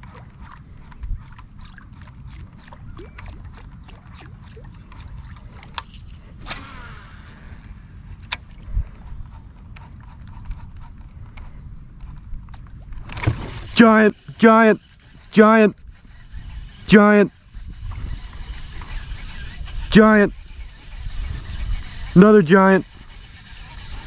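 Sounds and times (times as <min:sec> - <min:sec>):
light clicks and knocks of fishing gear: 0:00.0 - 0:06.3, 0:08.1 - 0:13.4
steady low rumble: 0:04.9 - 0:13.0.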